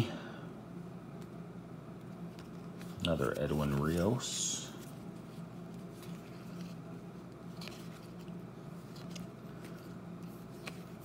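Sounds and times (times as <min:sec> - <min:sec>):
cards ticking and rustling: 0:02.0 - 0:04.1, 0:04.8 - 0:11.0.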